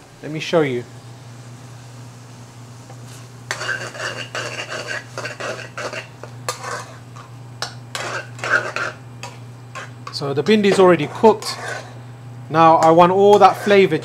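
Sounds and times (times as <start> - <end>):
metal ladle scraping a pan: 3.5 - 7.3, 7.9 - 12.0, 13.3 - 13.9.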